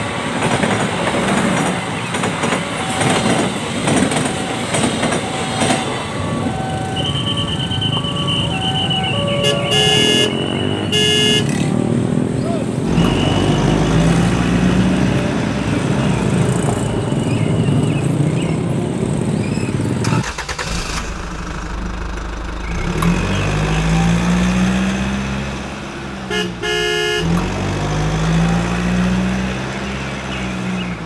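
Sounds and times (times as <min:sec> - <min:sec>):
motorcycle and truck engines: 0:00.0 - 0:31.0
horn toot: 0:06.8 - 0:11.7, 0:26.3 - 0:27.4.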